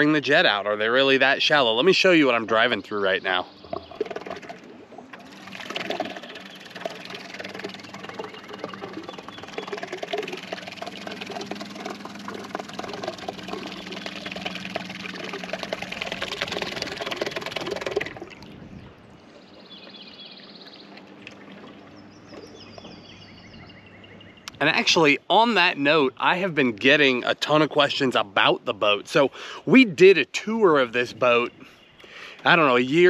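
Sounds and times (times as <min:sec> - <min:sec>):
boat motor humming: 0:00.0 - 0:28.4
water churning and splashing: 0:03.6 - 0:19.7, 0:20.7 - 0:22.9.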